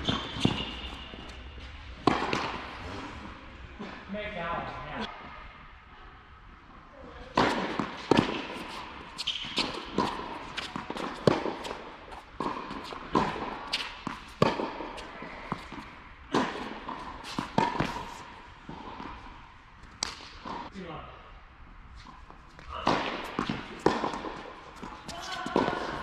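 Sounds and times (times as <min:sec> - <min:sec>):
tennis ball bouncing: 0:00.0 - 0:02.8, 0:07.3 - 0:20.7, 0:22.6 - 0:26.0
racket hitting tennis ball: 0:00.0 - 0:03.0, 0:07.3 - 0:19.3, 0:19.9 - 0:20.7, 0:22.6 - 0:26.0.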